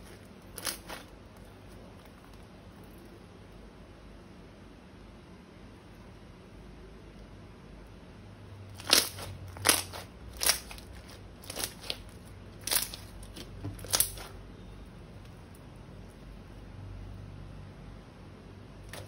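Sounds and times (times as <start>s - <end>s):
slime crackling crunches: 0.0s - 2.5s, 8.7s - 14.4s.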